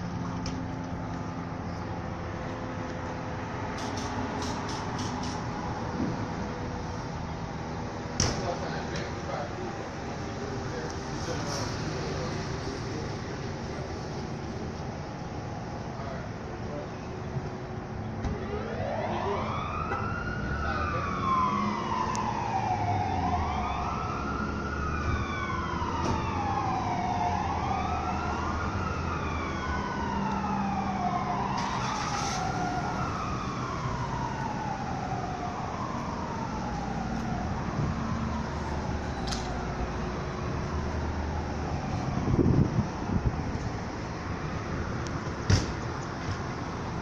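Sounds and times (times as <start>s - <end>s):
fire siren wailing: 17.9s - 47.0s.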